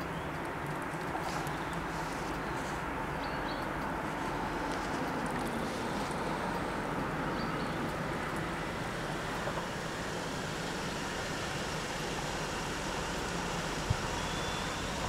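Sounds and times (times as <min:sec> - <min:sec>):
road traffic: 0:00.0 - 0:15.0
wind: 0:00.0 - 0:15.0
faint high chirps: 0:14.1 - 0:15.0.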